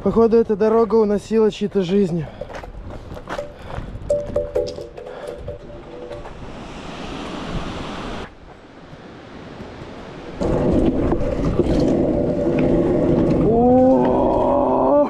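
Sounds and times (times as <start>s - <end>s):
wheels knocking on road cracks: 1.9s - 6.5s
scooter wheels rolling on asphalt: 1.9s - 14.9s
wind on microphone: 2.3s - 15.0s
rushing river water: 5.2s - 14.9s.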